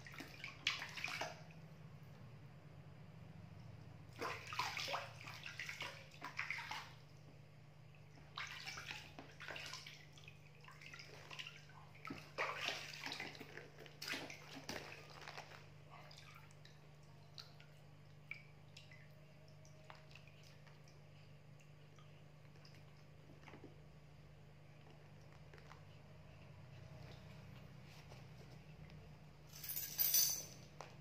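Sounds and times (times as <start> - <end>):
water splashing in a tub: 0.0 - 1.9, 3.8 - 28.0
water dripping: 3.5 - 27.4.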